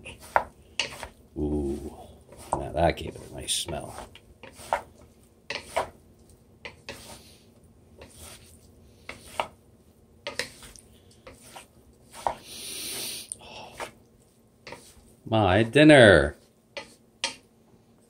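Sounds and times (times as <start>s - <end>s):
wooden spatulas scraping a pan: 0.0s - 6.0s, 6.6s - 9.6s, 10.2s - 17.4s
food hissing in a skillet: 6.9s - 7.5s, 11.4s - 14.0s.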